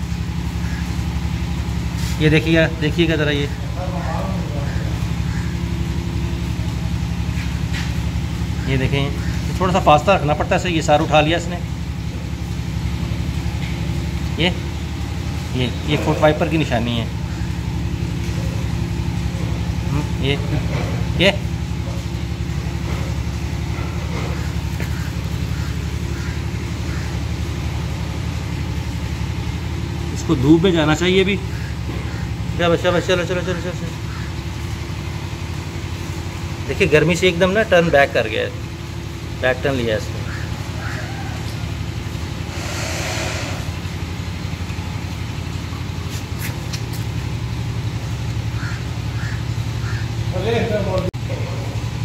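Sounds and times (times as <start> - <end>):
engine idling hum: 0.0 - 52.0.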